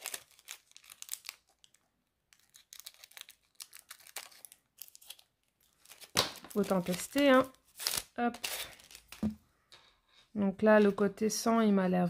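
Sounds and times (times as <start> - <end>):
plastic film crinkling and tearing: 0.0 - 9.3.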